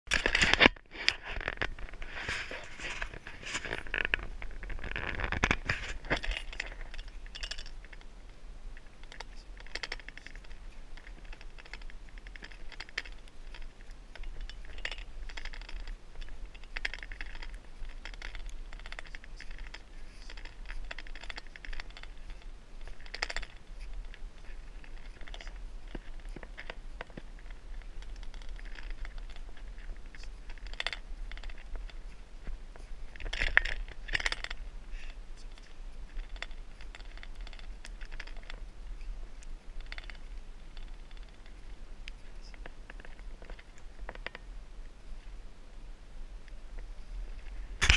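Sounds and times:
handheld camera rustling: 0.1 - 45.4, 46.5 - 47.9
steady low hum: 0.1 - 47.9.

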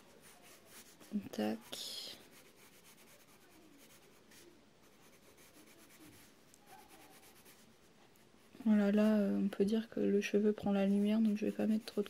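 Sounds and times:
pencil scratching on paper: 0.2 - 7.8, 10.7 - 12.0.

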